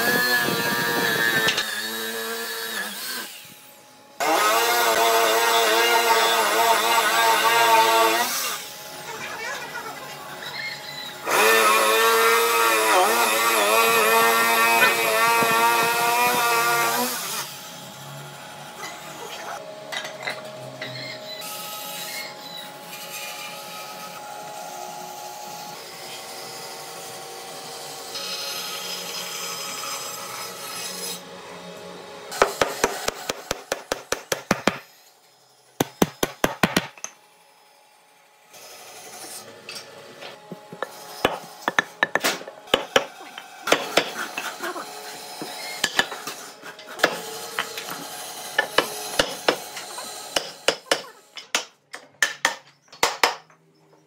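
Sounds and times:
whining power tool cutting wood: 0.0s - 18.4s.

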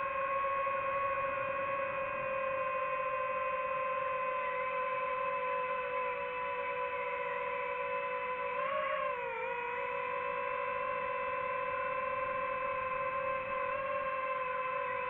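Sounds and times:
drone propellers whining: 0.0s - 15.0s.

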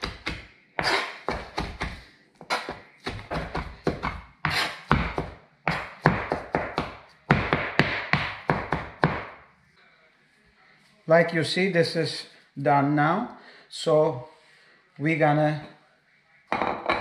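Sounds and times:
knife chopping on plastic board: 0.0s - 9.4s.

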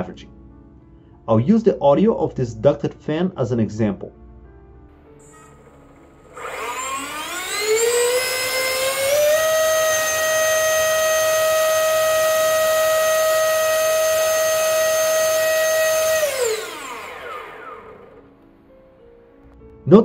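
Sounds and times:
ducted fan whining: 4.9s - 19.8s.

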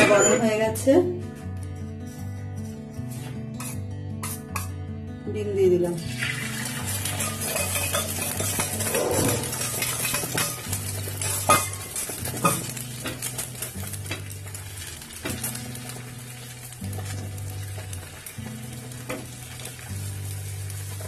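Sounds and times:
egg sizzling in hot oil: 6.0s - 21.0s
metallic clinks against pan: 7.1s - 11.8s.

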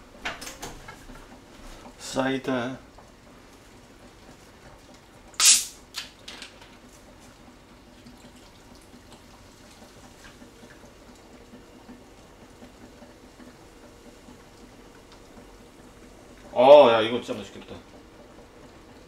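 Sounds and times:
soda bottle opening hiss: 5.4s - 5.8s
soda pouring and splashing: 5.4s - 5.9s.

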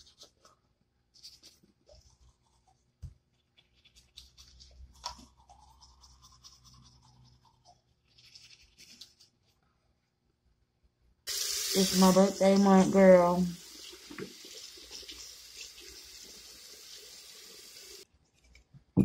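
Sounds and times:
toothbrush scrubbing teeth: 1.2s - 9.4s.

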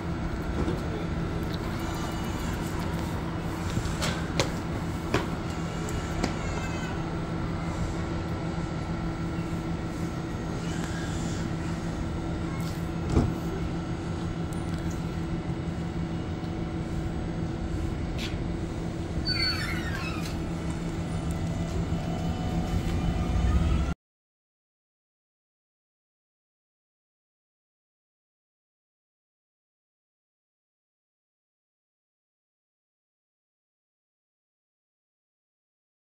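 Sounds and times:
train electrical hum: 0.0s - 24.0s
train doors thumping shut: 13.0s - 13.5s.

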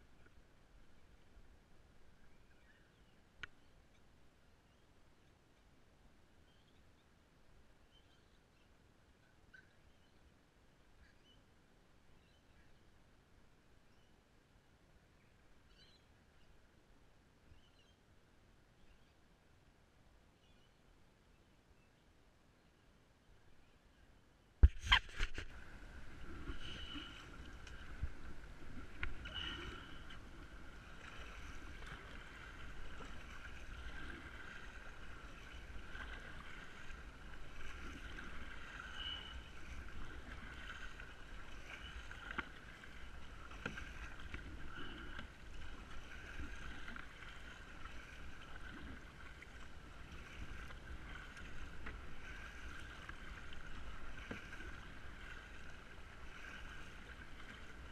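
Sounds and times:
paddle strokes: 24.6s - 57.9s.

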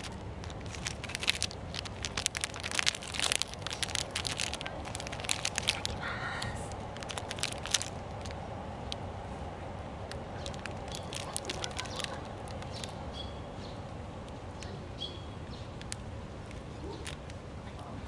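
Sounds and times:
plastic wrapper crinkling: 0.0s - 9.0s, 10.1s - 13.0s, 15.8s - 17.4s.

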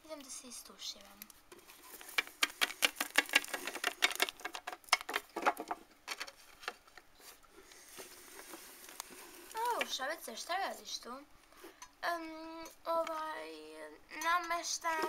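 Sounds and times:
plastic toys clicking on a tabletop: 2.2s - 5.3s.

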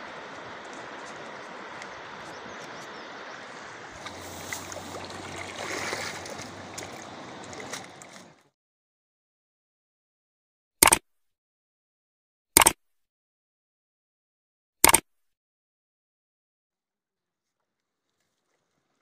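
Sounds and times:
river rushing over stones: 0.0s - 8.4s.

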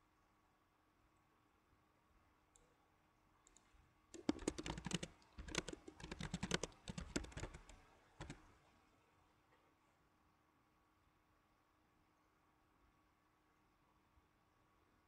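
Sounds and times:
typing on a keyboard: 4.1s - 8.5s.

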